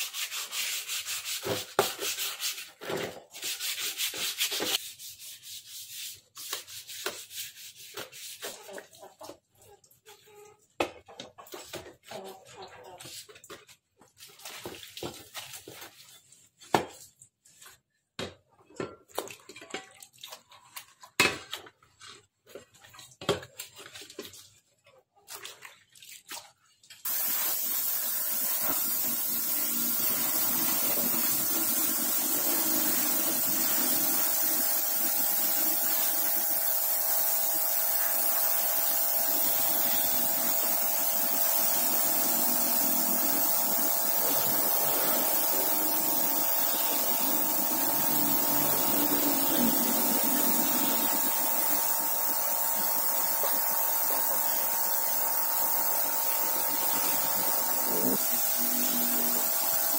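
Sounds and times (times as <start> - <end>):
loud hissing spray: 27.1 - 59.9.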